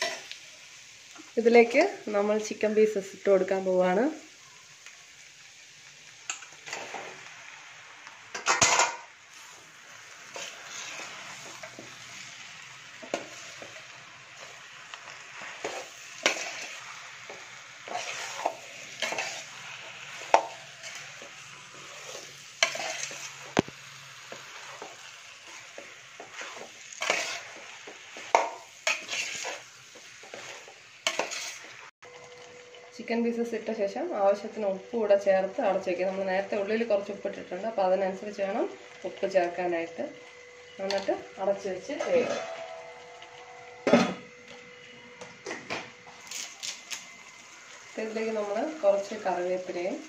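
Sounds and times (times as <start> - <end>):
food sizzling in oil: 0.0 - 50.0
metal spoon scraping pot: 17.9 - 19.5, 22.1 - 23.4, 26.2 - 27.6, 28.4 - 29.6, 30.3 - 31.6.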